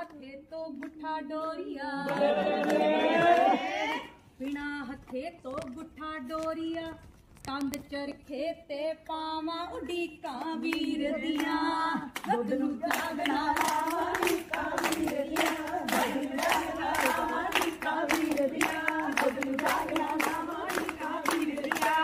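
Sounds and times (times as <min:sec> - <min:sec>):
woman singing: 0:00.0 - 0:02.4, 0:04.4 - 0:22.0
rhythmic hand clapping: 0:00.0 - 0:03.6, 0:10.0 - 0:22.0
women singing in group: 0:00.0 - 0:04.6, 0:09.2 - 0:22.0.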